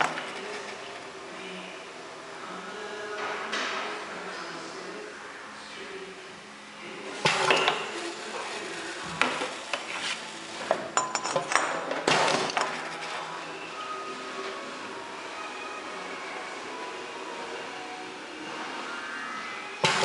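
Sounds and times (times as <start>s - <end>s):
steady background hum: 0.0s - 20.0s
glass bottles clinking: 10.7s - 12.7s.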